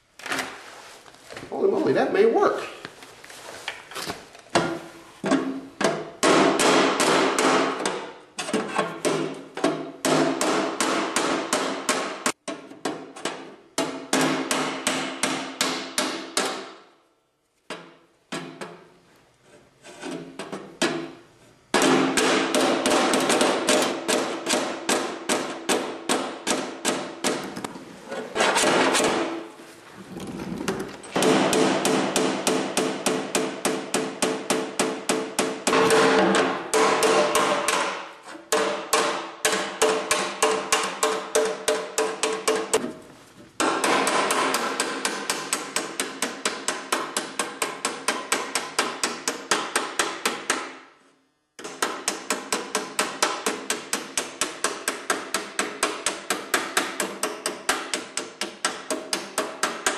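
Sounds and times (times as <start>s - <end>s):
hammer ringing on sheet metal: 31.2s - 42.8s, 43.6s - 50.7s.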